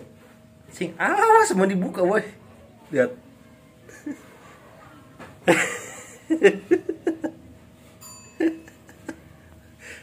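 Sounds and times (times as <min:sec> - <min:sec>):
people laughing: 0:05.4 - 0:07.5, 0:08.4 - 0:09.5.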